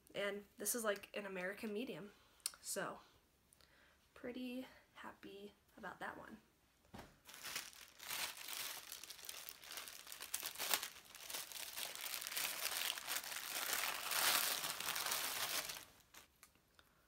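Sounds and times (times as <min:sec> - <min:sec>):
plastic bag crinkling: 0:07.2 - 0:16.4.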